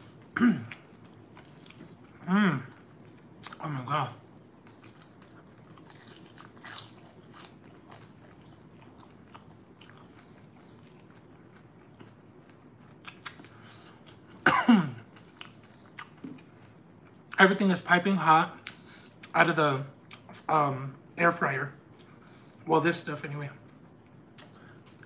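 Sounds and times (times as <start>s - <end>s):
mouth chewing crisp food: 0.0s - 14.4s, 15.0s - 17.4s, 23.6s - 25.0s.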